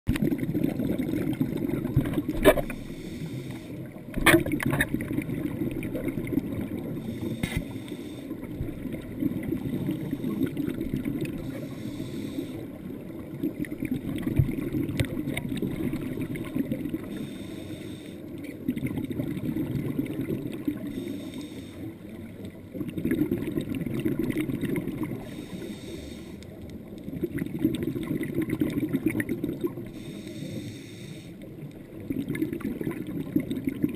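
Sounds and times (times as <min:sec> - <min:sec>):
exhaled air bubbles: 0:00.1 - 0:21.1, 0:22.0 - 0:26.0, 0:26.8 - 0:30.2, 0:31.0 - 0:33.9
diver breathing through regulator: 0:02.6 - 0:03.9, 0:07.0 - 0:08.4, 0:11.4 - 0:12.8, 0:17.0 - 0:18.3, 0:20.8 - 0:22.1, 0:25.1 - 0:26.6, 0:29.9 - 0:31.5.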